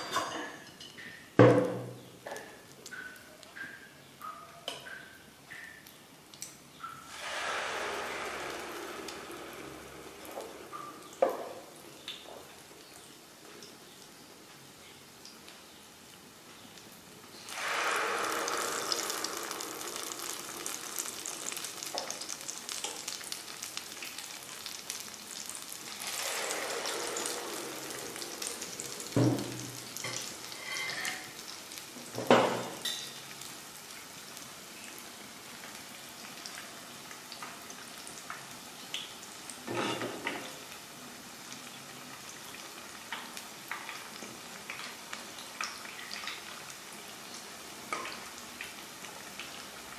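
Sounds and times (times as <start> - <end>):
batter sizzling in hot oil: 2.2 - 49.9.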